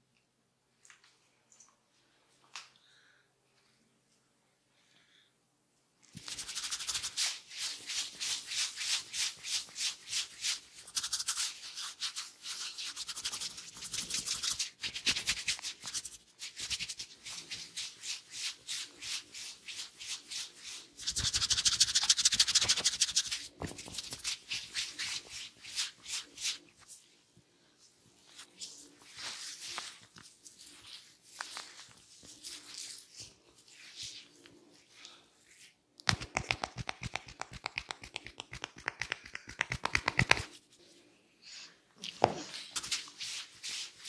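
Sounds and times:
fingers rubbing through hair: 0:06.2 - 0:27.0, 0:35.6 - 0:40.7.

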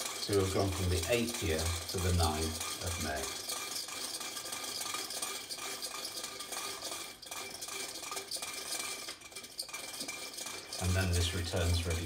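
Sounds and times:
wooden gears clicking: 0:00.0 - 0:12.0.

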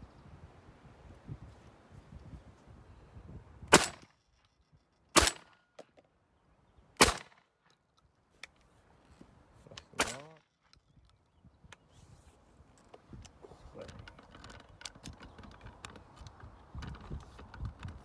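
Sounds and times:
wind rumble on microphone: 0:00.0 - 0:03.8, 0:10.9 - 0:18.0
shotgun shots: 0:03.7 - 0:04.1, 0:05.1 - 0:05.6, 0:07.0 - 0:07.4, 0:10.0 - 0:10.4.

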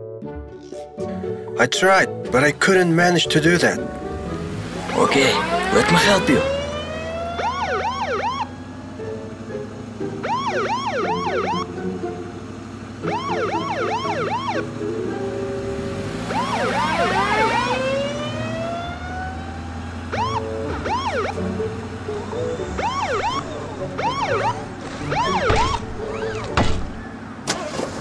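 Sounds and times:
police siren yelping and wailing: 0:04.8 - 0:09.0, 0:10.0 - 0:11.8, 0:13.0 - 0:15.3, 0:15.9 - 0:26.5.

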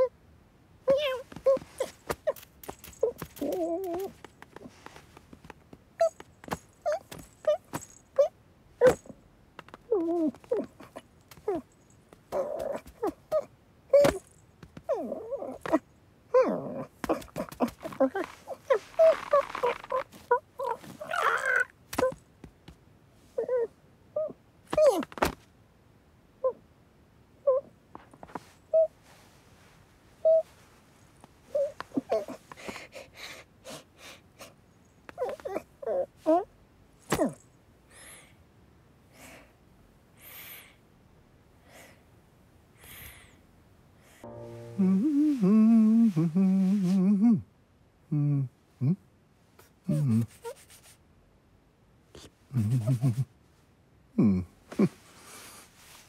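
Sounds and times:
cartoon kitten growls and mews: 0:00.9 - 0:02.4, 0:12.3 - 0:14.3, 0:14.9 - 0:22.2.

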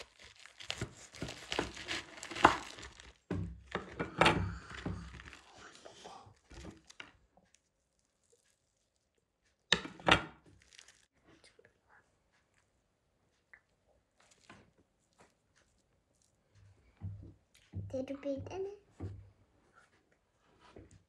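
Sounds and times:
knife sawing through potato skin: 0:00.0 - 0:03.1
potato crust breaking: 0:00.0 - 0:03.9, 0:04.6 - 0:05.8, 0:10.5 - 0:11.1.

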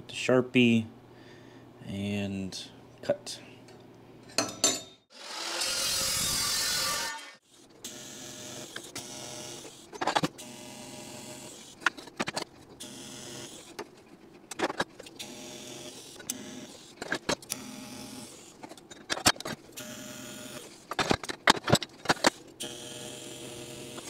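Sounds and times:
welding arc buzzing: 0:05.2 - 0:09.8, 0:12.8 - 0:13.7, 0:15.2 - 0:16.9, 0:17.5 - 0:18.5, 0:19.8 - 0:20.7, 0:22.6 - 0:24.0.

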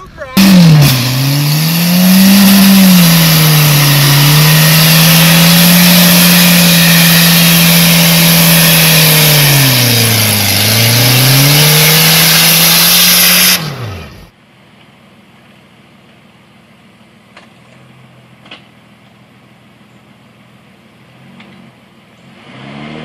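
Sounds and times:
engine revving high: 0:00.4 - 0:14.3, 0:22.3 - 0:23.0.

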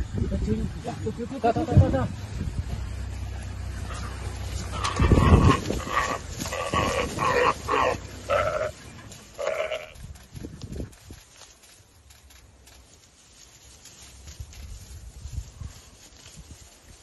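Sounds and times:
low rumble: 0:00.0 - 0:11.2
antelope bleating distress calls: 0:03.8 - 0:10.0.

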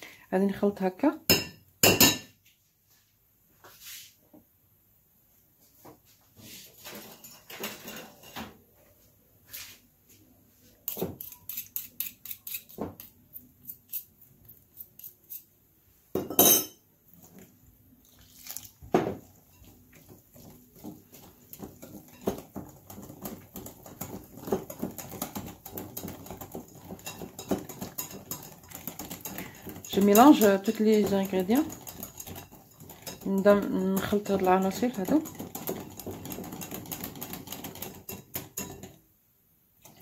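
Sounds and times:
cutlery scraping mixing bowl: 0:10.8 - 0:15.5, 0:18.1 - 0:39.0, 0:39.8 - 0:40.0.

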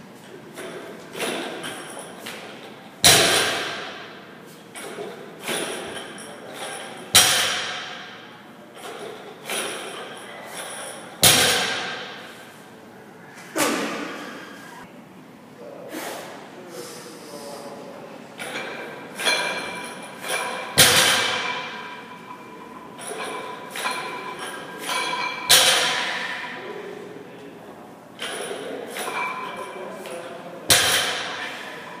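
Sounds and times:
barbell thudding on floor: 0:03.0 - 0:04.2, 0:06.6 - 0:08.2, 0:11.2 - 0:12.3, 0:18.4 - 0:22.2, 0:30.7 - 0:31.6
barbell plates rattling: 0:18.4 - 0:26.7, 0:28.2 - 0:29.8, 0:30.7 - 0:32.0.

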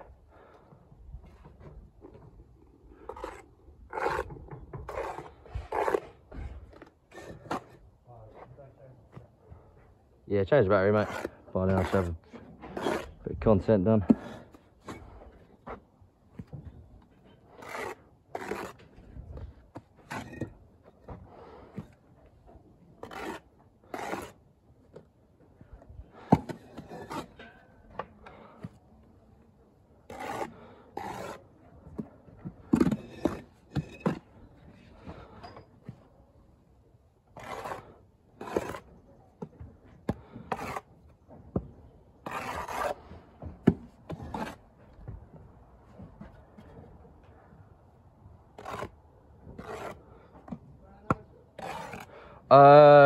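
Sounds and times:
trowel scraping mortar: 0:03.0 - 0:07.8, 0:10.9 - 0:13.2, 0:17.2 - 0:19.1, 0:19.8 - 0:20.6, 0:23.0 - 0:24.4, 0:26.2 - 0:27.6, 0:30.0 - 0:31.6, 0:32.6 - 0:34.3, 0:37.3 - 0:39.0, 0:40.1 - 0:41.0, 0:42.2 - 0:43.2, 0:44.1 - 0:44.7, 0:48.5 - 0:50.6, 0:51.6 - 0:52.2.

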